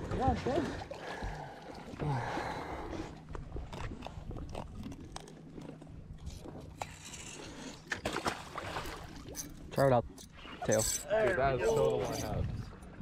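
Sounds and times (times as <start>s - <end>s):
fish handling clicks and scrapes: 3.6s - 8.4s
water splash: 7.9s - 9.4s.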